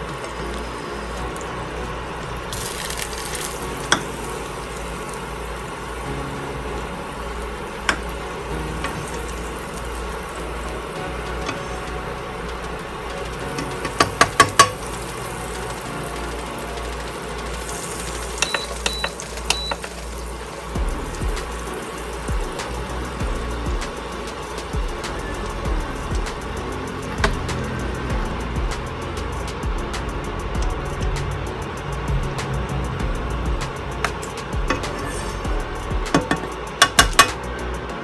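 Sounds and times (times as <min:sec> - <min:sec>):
butter sizzling in a pan: 0:00.0 - 0:37.8.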